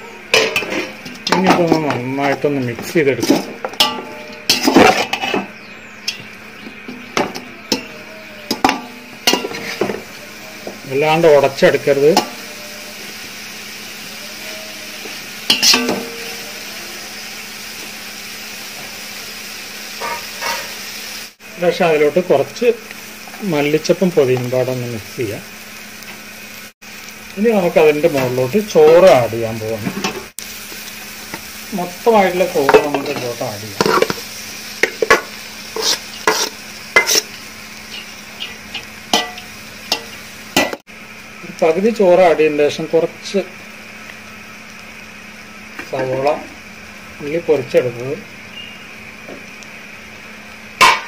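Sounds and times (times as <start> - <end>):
sizzle of frying: 0.0 - 51.0
metal spoon scraping steel pot: 3.2 - 5.5, 35.8 - 37.3.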